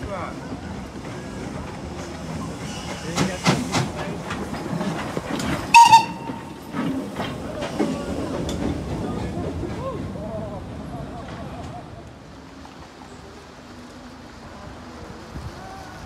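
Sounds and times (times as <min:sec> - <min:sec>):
steam locomotive whistle toot: 0:05.7 - 0:06.6.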